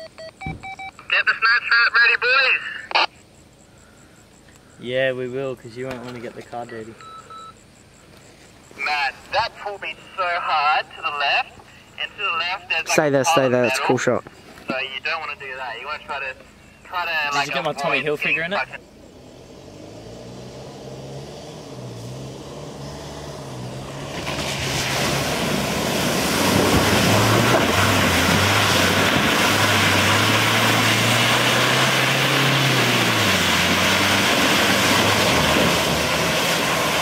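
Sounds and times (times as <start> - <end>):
truck engine revving: 17.3 - 37.0
tyres churning mud and water: 23.9 - 37.0.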